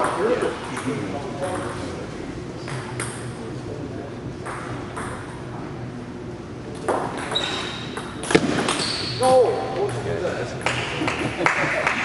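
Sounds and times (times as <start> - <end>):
table tennis ball hits: 4.4 - 5.4, 6.8 - 10.0.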